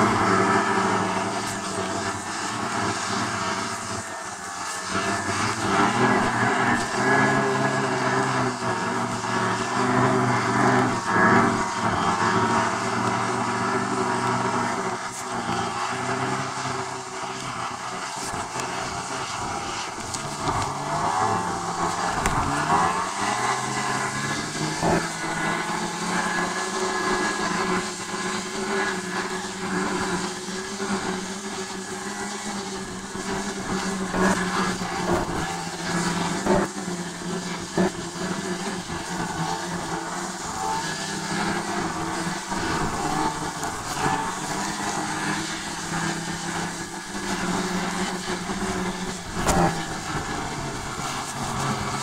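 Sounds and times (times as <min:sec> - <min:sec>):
vehicle engine running: 0:00.0 - 0:52.0.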